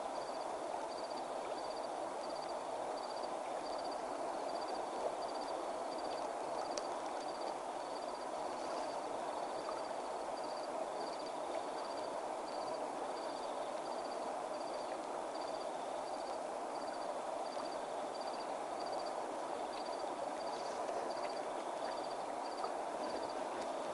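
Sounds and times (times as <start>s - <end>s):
insect chirping: 0.0s - 23.9s
steady night hiss: 0.0s - 23.9s
faint clicks: 6.1s - 7.3s.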